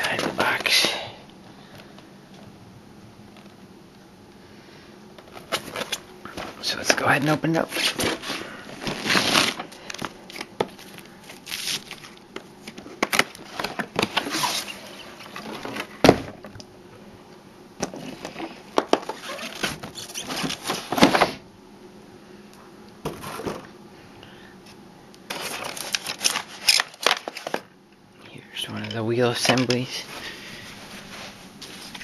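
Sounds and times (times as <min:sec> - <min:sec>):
cardboard box scraping and rustling: 0:07.9 - 0:09.6.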